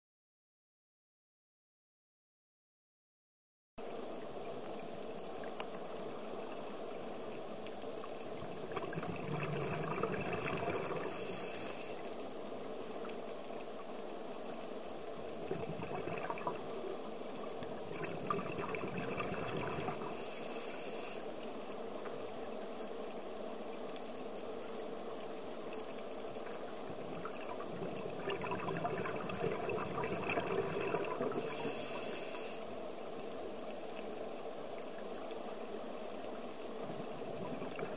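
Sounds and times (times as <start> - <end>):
exhaled bubbles gurgling: 8.0 - 12.1, 15.2 - 21.3, 26.3 - 32.7, 36.7 - 37.9
regulator inhale hiss: 10.9 - 12.2, 20.0 - 21.4, 31.2 - 32.7
muffled underwater background: 27.5 - 32.6.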